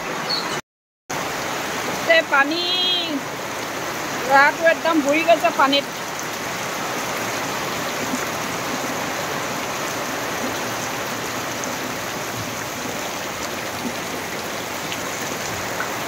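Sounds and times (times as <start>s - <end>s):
heavy rain on floodwater: 1.1s - 16.0s.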